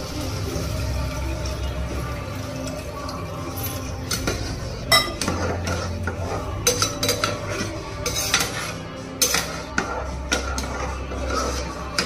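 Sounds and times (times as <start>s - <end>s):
spoon scraping a cooking pot: 3.4s - 12.0s.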